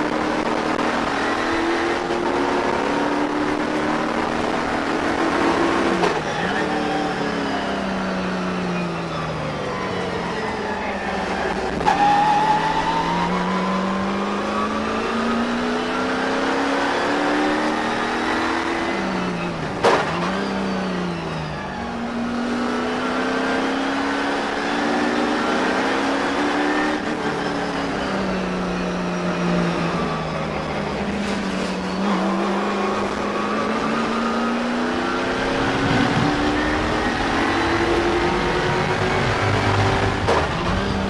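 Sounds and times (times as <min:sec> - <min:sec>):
car rushing along track: 0:00.0 - 0:41.0.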